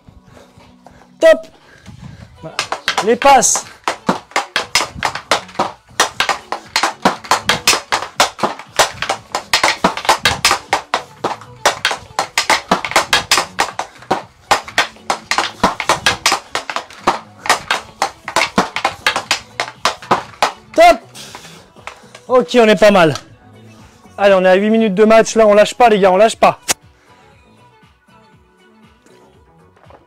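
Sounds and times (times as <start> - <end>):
hockey stick and puck clacking: 2.6 - 22.3.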